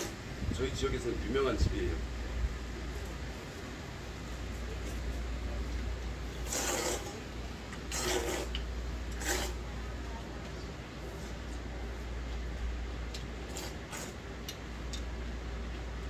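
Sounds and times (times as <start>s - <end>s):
steady low hum: 0.0s - 16.0s
person slurping noodles: 6.4s - 7.2s, 7.9s - 9.6s, 13.5s - 14.2s.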